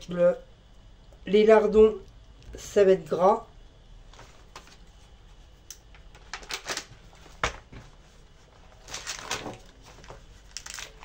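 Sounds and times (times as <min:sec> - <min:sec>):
plastic packet rustling: 0:06.0 - 0:07.6, 0:08.6 - 0:11.0.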